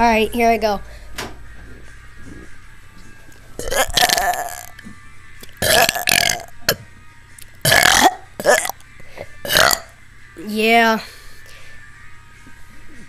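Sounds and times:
boy belching loudly: 3.6 - 4.8, 5.4 - 6.8, 7.6 - 8.8, 9.4 - 10.0.

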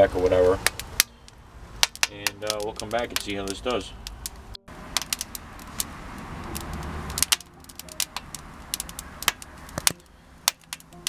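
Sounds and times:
wood fire crackling: 0.0 - 11.0
low rushing noise: 2.8 - 11.0.

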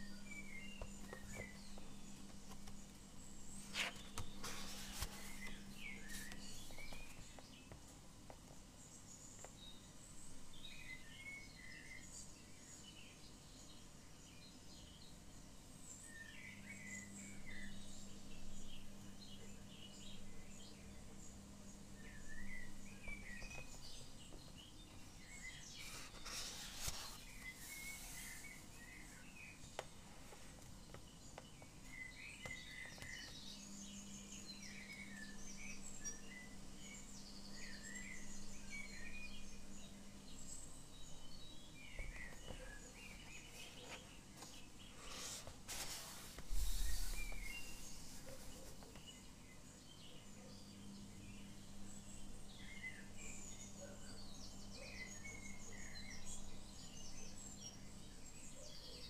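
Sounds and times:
faint steady hum: 0.0 - 59.0
songbirds chirping: 0.0 - 59.0
paper rustling: 0.7 - 7.4, 25.8 - 28.6, 42.2 - 49.0.

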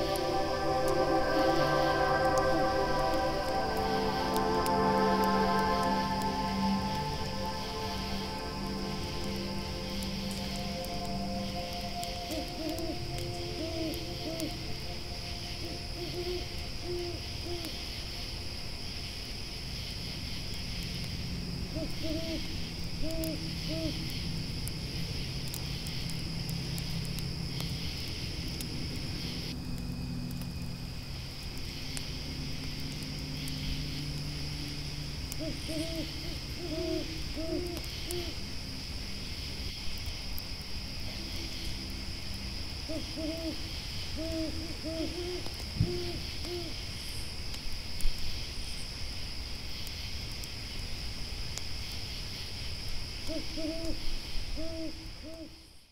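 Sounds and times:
faint crackling ticks: 0.0 - 14.6, 21.9 - 36.0, 37.6 - 38.5, 47.4 - 48.9, 49.7 - 50.6
owl hooting: 0.0 - 17.8, 21.7 - 24.0, 35.3 - 38.4, 42.9 - 46.8, 53.3 - 55.7
crickets chirring: 0.0 - 55.9.

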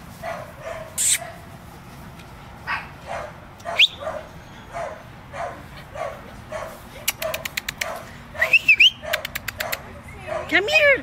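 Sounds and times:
dogs barking: 0.2 - 1.5, 2.6 - 11.0
dog yelping: 2.7 - 10.6.

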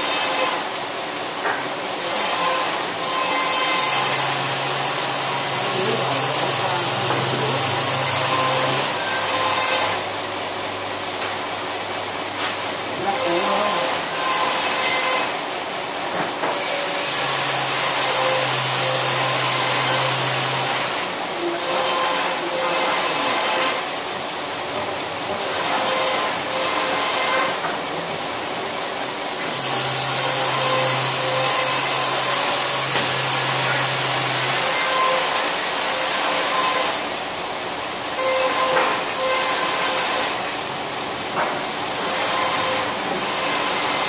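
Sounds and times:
wood-cutting disc saw whine: 2.0 - 10.1, 12.9 - 15.4, 16.4 - 23.8, 29.4 - 37.1, 38.2 - 40.5, 41.3 - 44.0.

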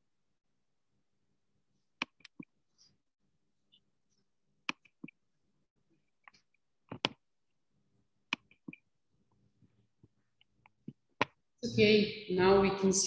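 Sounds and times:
computer mouse clicks: 2.0 - 2.5, 4.6 - 5.2, 6.2 - 7.2, 8.3 - 8.9.

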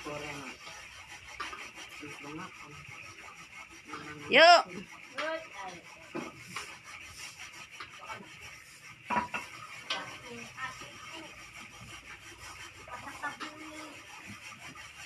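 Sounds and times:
metal pots and utensils clattering: 8.8 - 10.6.

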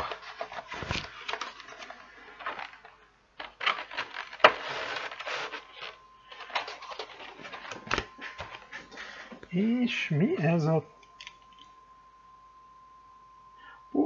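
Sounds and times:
plastic packaging crinkling: 0.0 - 8.6.

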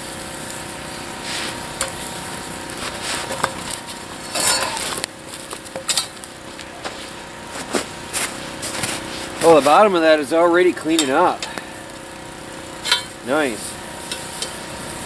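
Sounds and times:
wood fire crackling and hissing: 0.0 - 15.0
metal rake scraping iron pot: 0.9 - 6.3, 8.2 - 12.1, 12.7 - 15.0.

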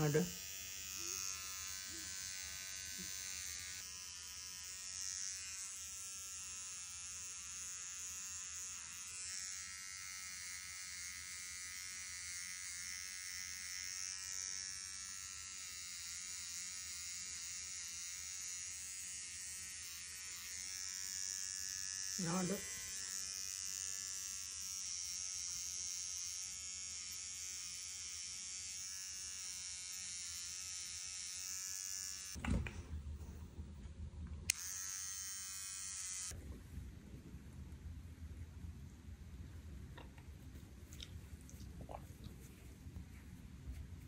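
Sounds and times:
electric pet clippers buzzing: 0.0 - 32.4, 34.5 - 36.4.

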